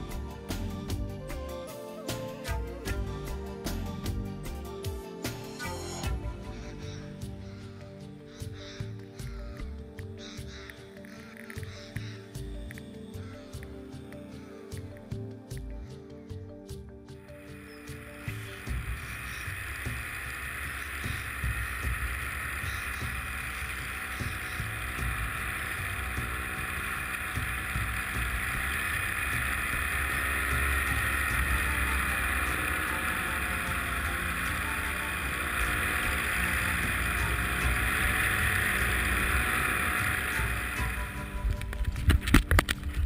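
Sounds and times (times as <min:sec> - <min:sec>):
paramotor engine and propeller: 0:00.0 - 0:08.0, 0:17.4 - 0:43.0.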